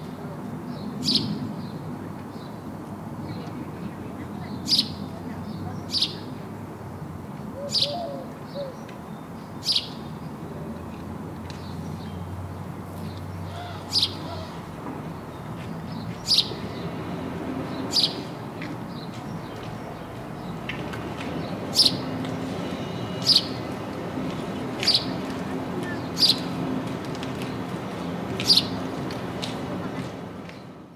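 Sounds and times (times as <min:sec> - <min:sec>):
sparrow chirping: 0:04.3 - 0:06.4, 0:07.6 - 0:10.1, 0:13.0 - 0:14.5, 0:15.4 - 0:16.9, 0:17.7 - 0:18.3, 0:21.4 - 0:23.8, 0:24.4 - 0:26.6, 0:28.4 - 0:28.8.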